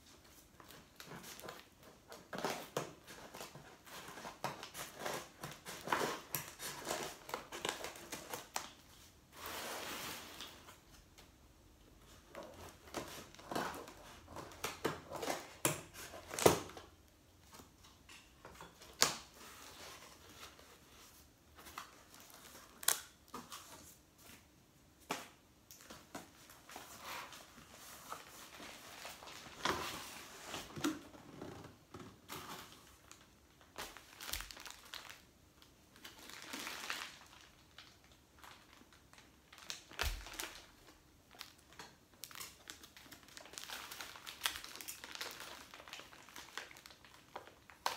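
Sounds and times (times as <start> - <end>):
plastic wrap crinkling: 0.1 - 11.1, 25.3 - 47.9.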